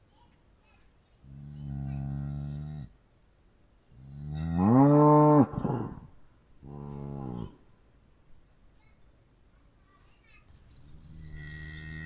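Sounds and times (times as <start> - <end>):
cows mooing: 11.3 - 12.0.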